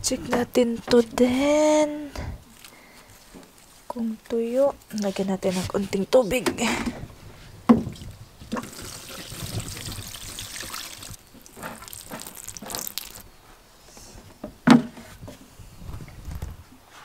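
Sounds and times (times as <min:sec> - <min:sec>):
water pouring from watering can: 0:08.0 - 0:13.2.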